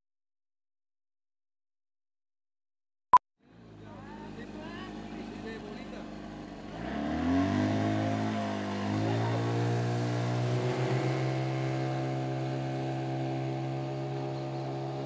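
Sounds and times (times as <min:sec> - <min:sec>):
outboard motor revving: 0:03.8 - 0:15.0.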